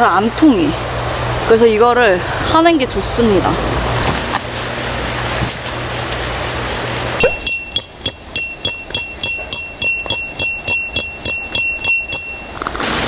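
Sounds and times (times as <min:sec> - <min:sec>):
tent peg being hammered: 0:07.2 - 0:12.5
steady high ringing tone: 0:07.2 - 0:12.7.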